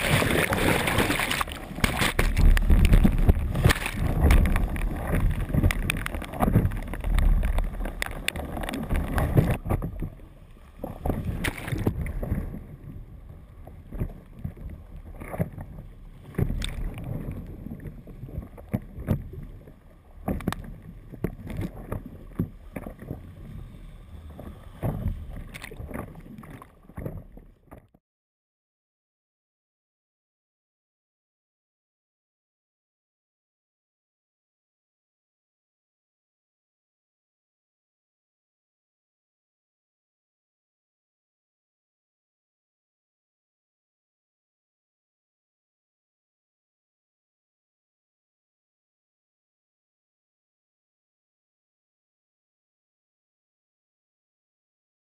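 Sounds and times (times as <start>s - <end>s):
whitewater rushing: 0.0s - 9.5s
paddle splashes and knocks: 0.0s - 10.2s, 10.8s - 12.9s, 13.8s - 23.2s, 24.4s - 28.0s.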